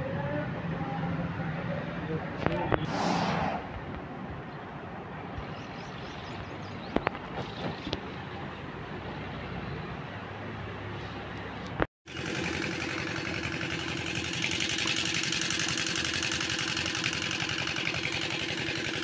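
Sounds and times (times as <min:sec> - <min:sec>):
engine chugging: 0:12.1 - 0:19.0.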